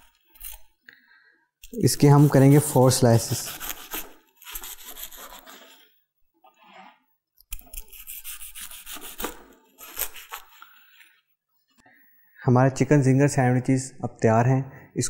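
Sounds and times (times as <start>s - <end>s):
knife sawing through toast: 2.0s - 5.8s, 7.6s - 10.6s.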